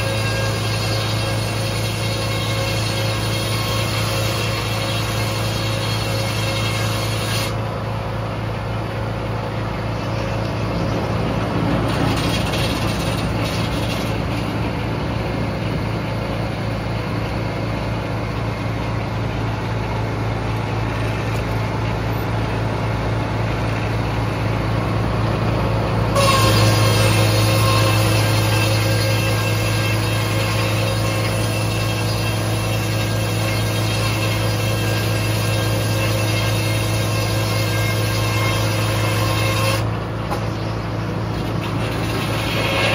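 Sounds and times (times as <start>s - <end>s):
circular saw blade cutting log: 0.0s - 15.8s, 26.1s - 42.9s
saw blade whine running free: 0.0s - 16.8s, 17.7s - 42.9s
mill machinery hum: 0.0s - 42.9s.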